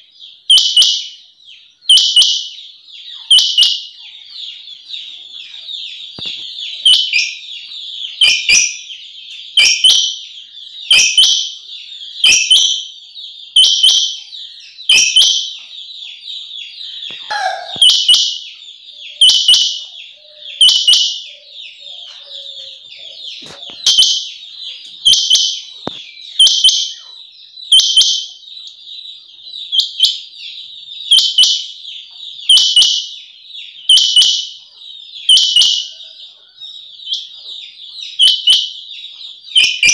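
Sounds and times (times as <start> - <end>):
quail calling: 14.9 - 28.1.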